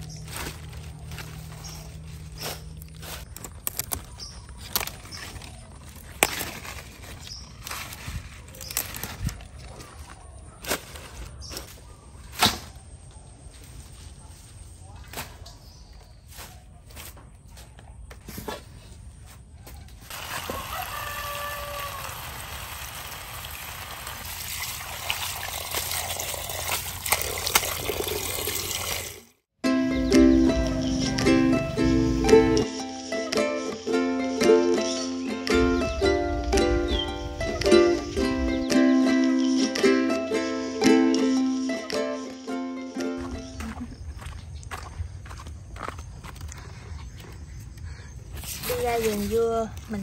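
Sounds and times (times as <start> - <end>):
leaves rustling: 0.0 - 17.5, 20.0 - 29.0, 48.3 - 50.0
vegetable stems snapping: 2.3 - 9.4
water running and splashing: 20.1 - 29.4.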